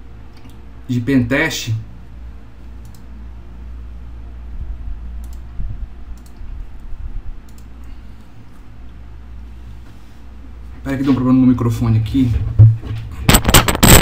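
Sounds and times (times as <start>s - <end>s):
low steady hum: 0.0s - 14.0s
computer mouse clicks: 2.8s - 3.1s, 5.2s - 5.5s, 6.1s - 6.9s, 7.5s - 7.9s.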